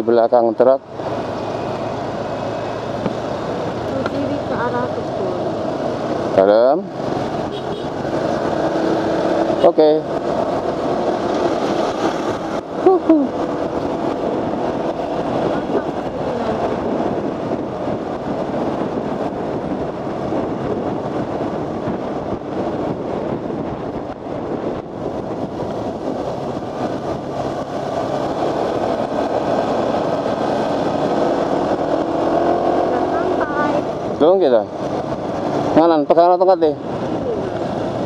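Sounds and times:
motorcycle engine riding: 0.0 - 38.0
wind rush on microphone: 0.0 - 38.0.

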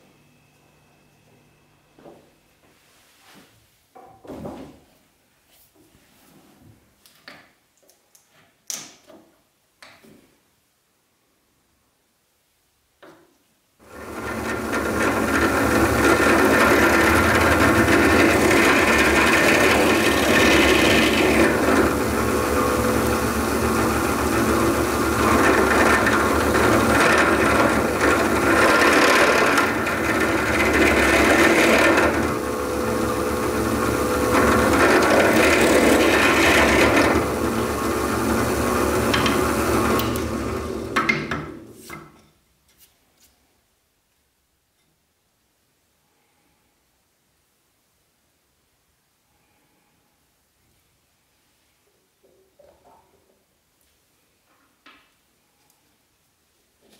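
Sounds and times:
drill bit grinding through wood: 13.8 - 41.0
drill press motor hum: 13.9 - 41.7.

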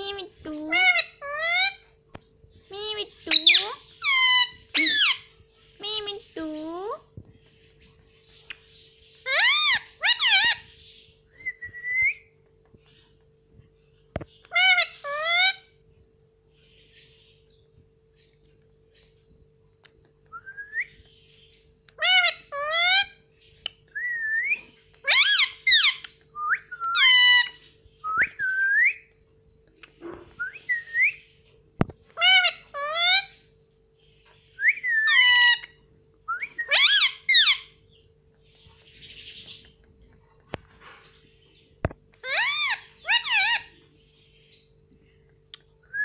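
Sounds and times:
parakeet whistled calls: 3.2 - 6.1, 9.2 - 12.3, 25.0 - 26.0, 26.6 - 29.1, 34.5 - 37.8, 42.2 - 43.8.

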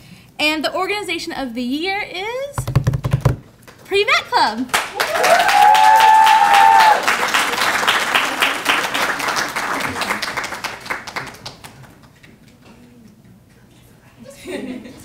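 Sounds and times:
audience applauding: 4.7 - 12.2
person cheering: 5.0 - 7.1.

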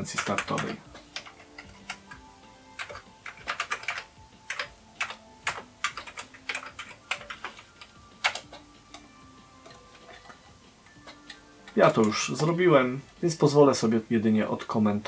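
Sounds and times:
computer keyboard typing: 0.0 - 9.1.

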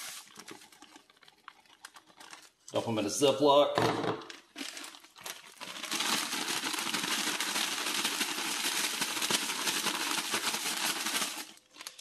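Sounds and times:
plastic bag of powder shaken: 0.0 - 1.2, 4.5 - 12.0.

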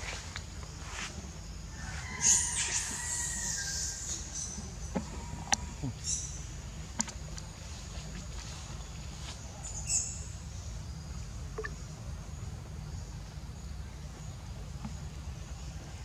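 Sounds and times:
faint high insect buzz: 0.0 - 6.3.

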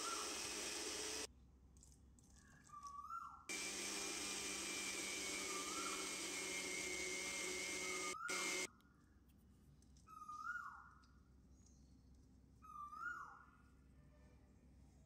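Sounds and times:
mixer grinder whirring: 0.0 - 1.3, 3.5 - 8.7.

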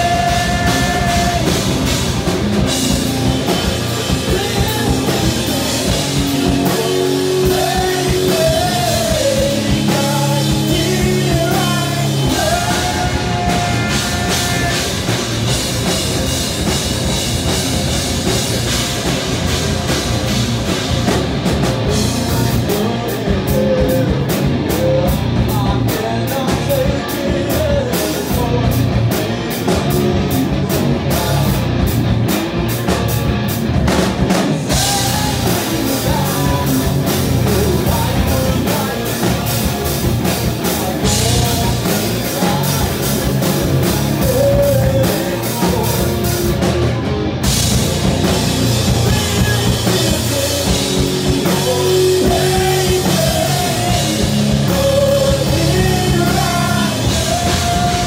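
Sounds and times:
person singing: 0.0 - 2.0, 3.4 - 15.2, 21.8 - 31.6, 34.5 - 46.9, 48.8 - 58.0
bass guitar: 0.0 - 58.0
distorted electric guitars: 0.0 - 58.0
drum kit: 0.0 - 58.0.

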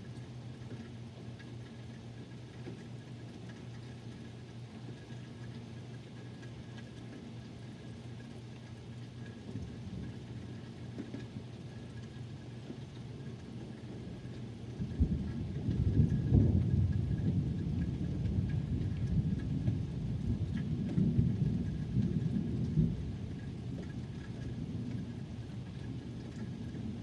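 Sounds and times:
steady rain: 0.0 - 27.0
thunder clap and rumble: 14.2 - 27.0.

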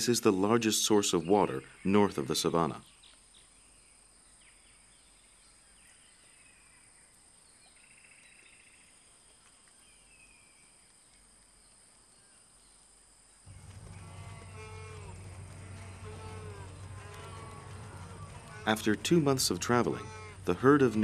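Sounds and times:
faint bird chirps: 1.1 - 12.9.

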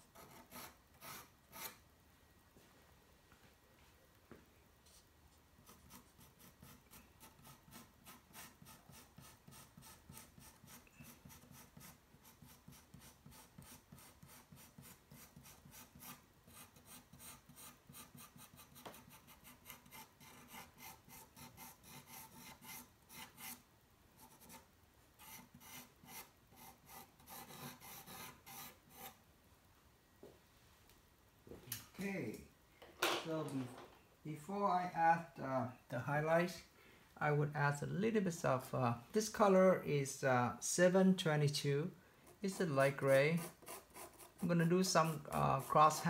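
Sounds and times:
pencil scratching on paper: 0.1 - 1.8, 5.6 - 23.6, 24.2 - 29.2, 42.2 - 46.0.

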